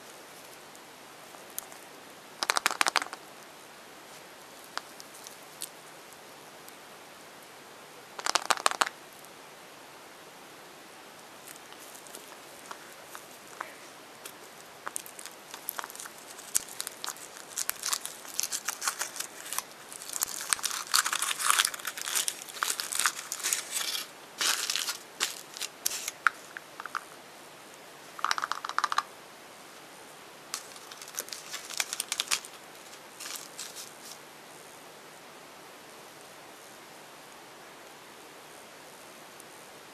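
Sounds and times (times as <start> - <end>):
foil wrapper crinkling and tearing: 14.8 - 27.1, 30.6 - 34.2.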